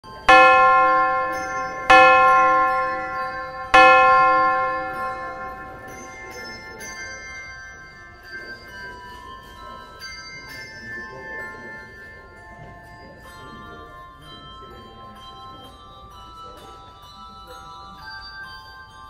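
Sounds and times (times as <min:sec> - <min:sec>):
bell ringing: 0:00.0 - 0:12.4
higher bell notes: 0:00.0 - 0:17.9.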